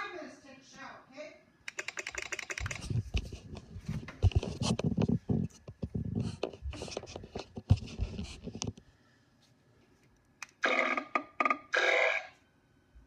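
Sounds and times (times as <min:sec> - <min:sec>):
hands rubbing and tapping on laptop: 0:01.8 - 0:08.8.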